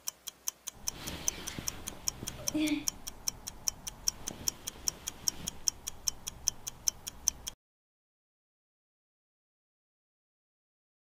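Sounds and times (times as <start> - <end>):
clock ticking quickly: 0.0 - 7.6.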